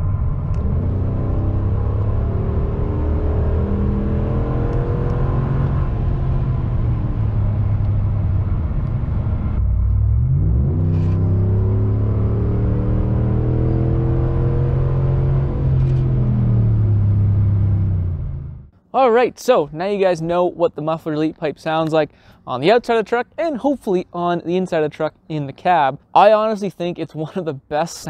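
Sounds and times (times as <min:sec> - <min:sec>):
deep engine exhaust rumble: 0:00.0 - 0:18.8.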